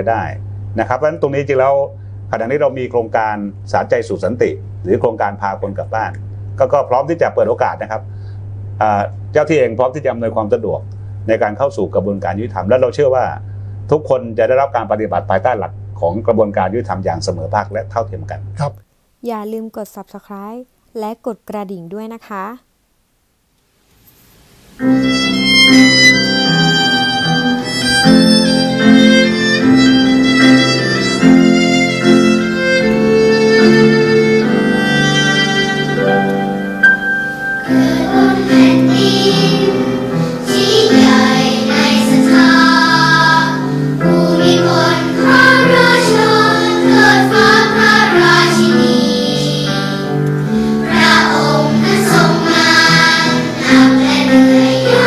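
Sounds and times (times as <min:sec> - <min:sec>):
piano accompaniment: 0:24.8 - 0:55.0
violin melody: 0:25.0 - 0:48.7
children's choir singing: 0:37.6 - 0:50.1, 0:50.8 - 0:55.0.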